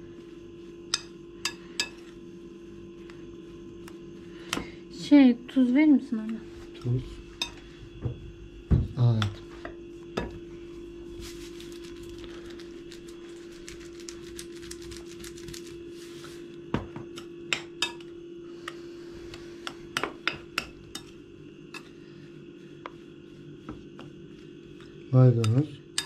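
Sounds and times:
steady low hum: 0.0s - 26.0s
utensil clinking on a glass bowl: 25.4s - 26.0s.

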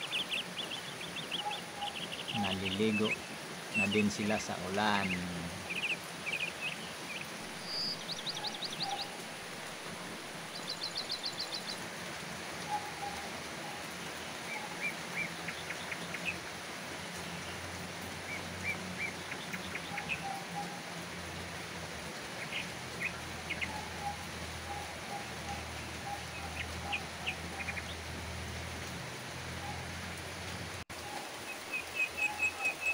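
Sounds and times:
bird chirps: 0.0s - 9.2s
rain on foliage: 0.0s - 32.9s.

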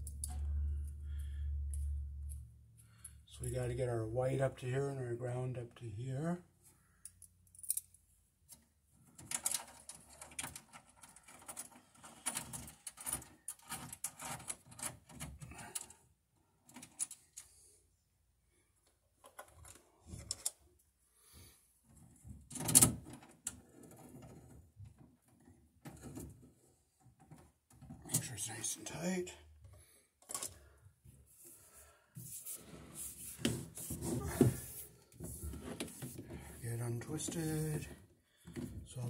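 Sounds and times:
wires clicking and rustling: 0.0s - 1.0s, 7.0s - 15.9s, 30.2s - 30.6s.

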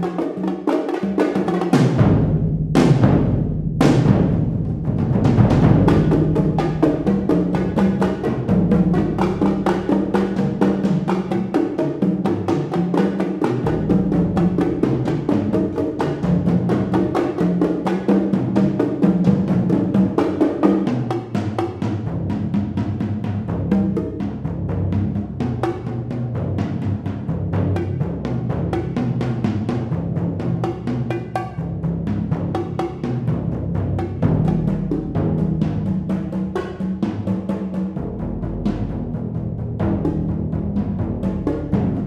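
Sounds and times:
percussion ensemble drumming: 0.0s - 42.0s.

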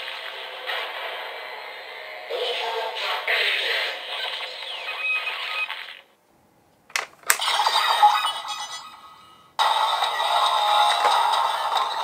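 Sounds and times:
sharp plastic clicks: 6.8s - 7.4s.

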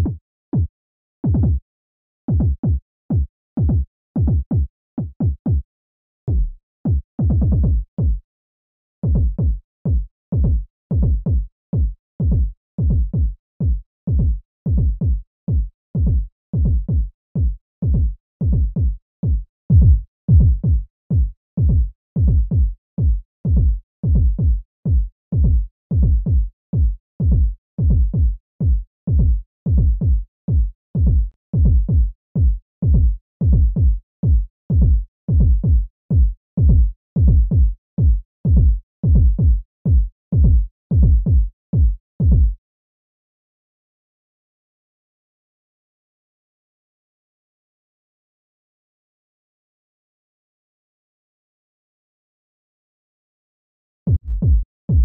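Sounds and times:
low kick-drum bass notes: 6.3s - 8.2s, 9.0s - 42.6s, 54.1s - 55.0s.

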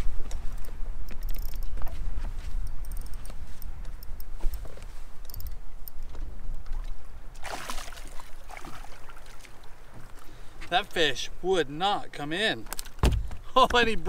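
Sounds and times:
water lapping against boat hull: 6.1s - 10.4s.

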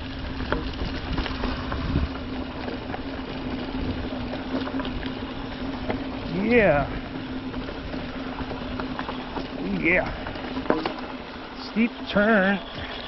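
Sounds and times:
bike clicks and rattles: 0.0s - 13.0s
low buzzing tone: 0.0s - 13.0s
tyres rumbling on dirt: 0.0s - 13.0s
wind on the microphone: 0.2s - 2.2s.

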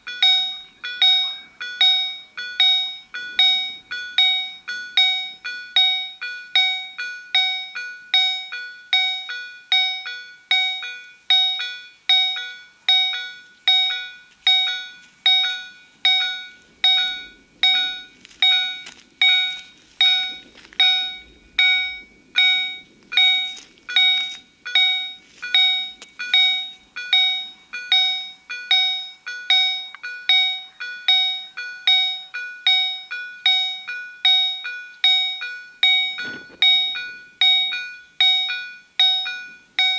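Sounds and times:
level crossing bells ringing: 0.0s - 39.9s
faint low rumble: 14.0s - 28.6s.

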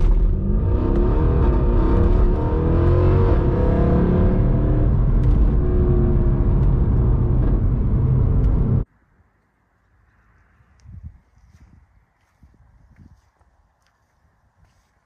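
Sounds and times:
car engine accelerating: 0.0s - 8.8s.

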